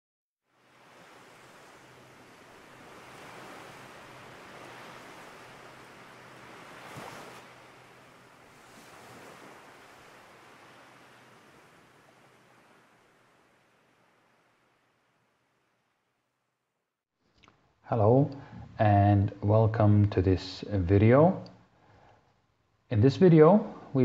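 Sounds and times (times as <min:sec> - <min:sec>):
faint ocean surf: 0:00.4 - 0:16.0, 0:22.9 - 0:24.0.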